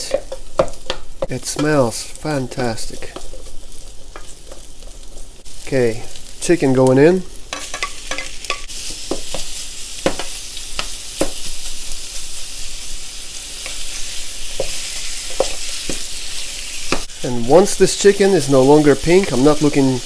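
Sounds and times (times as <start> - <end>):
wooden spoon knocking on pot: 0.0 - 1.8
chicken sizzling in hot oil: 0.0 - 20.0.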